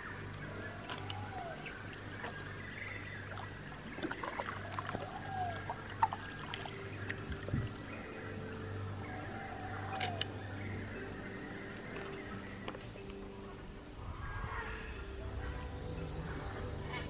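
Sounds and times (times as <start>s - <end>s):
paddle splashing and dripping water: 0.0s - 17.0s
steady low hum: 0.0s - 17.0s
whistled calls: 0.0s - 17.0s.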